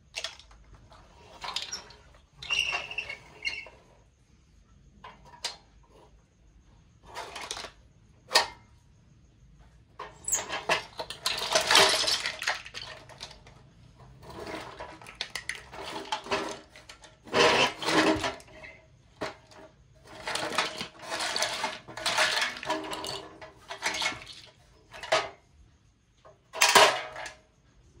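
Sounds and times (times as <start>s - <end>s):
plastic toys clattering: 0.0s - 3.9s, 7.0s - 8.6s, 10.0s - 25.5s, 26.2s - 27.4s.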